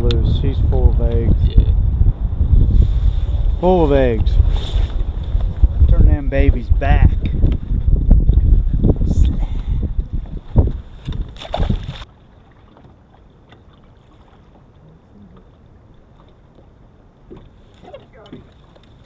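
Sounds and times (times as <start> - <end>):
wind buffeting microphone: 0.0 - 12.1
water around boat: 0.0 - 19.0.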